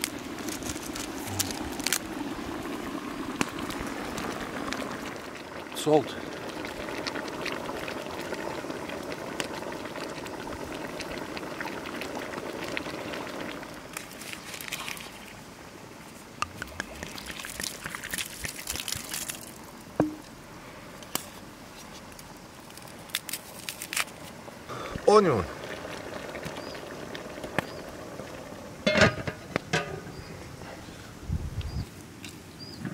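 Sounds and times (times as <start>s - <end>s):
pot of broth bubbling: 0.0s - 15.7s, 16.4s - 20.5s, 24.4s - 30.6s.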